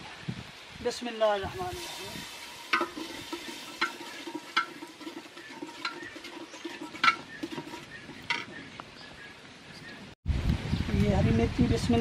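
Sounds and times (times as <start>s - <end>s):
steel spoon scraping a steel pot: 1.8s - 8.4s.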